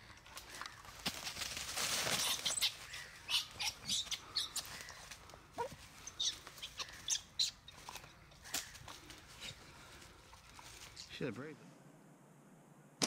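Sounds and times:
dogs rustling in dry leaves: 0.4s - 3.0s.

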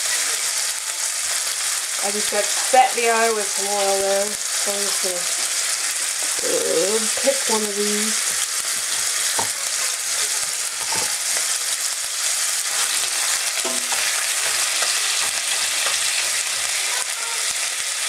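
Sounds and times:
meat sizzling in a pan: 0.0s - 18.0s
utensil scraping a pan: 12.6s - 16.8s.

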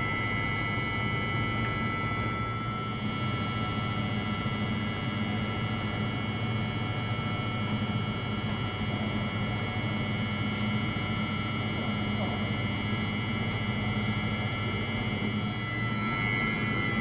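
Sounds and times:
high-pitched whining tones: 0.0s - 5.2s, 14.4s - 17.0s
electric train humming: 14.2s - 17.0s.

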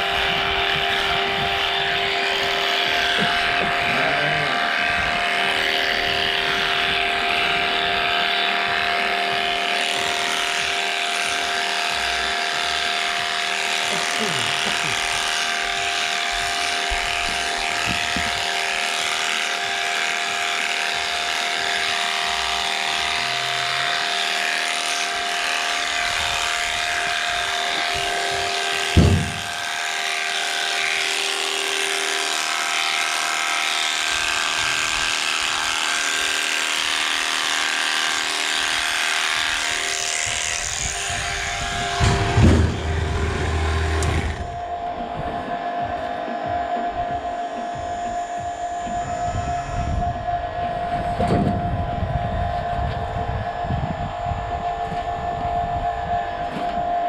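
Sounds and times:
electric shears whining: 0.0s - 57.0s
sharp knocks: 28.9s - 29.5s, 42.0s - 44.4s.

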